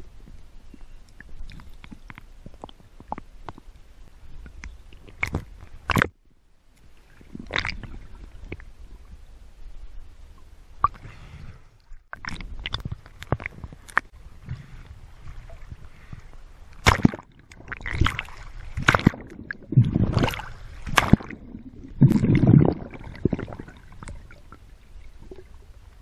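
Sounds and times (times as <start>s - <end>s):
underwater rumble of moving water: 0.0s - 26.0s
underwater clicks: 4.4s - 6.2s, 12.1s - 14.1s, 16.7s - 24.2s.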